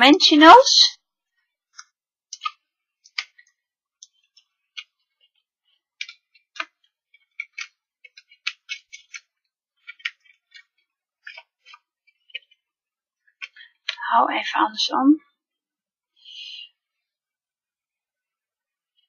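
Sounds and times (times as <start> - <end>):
paper rustling and clicking: 1.7 - 12.6.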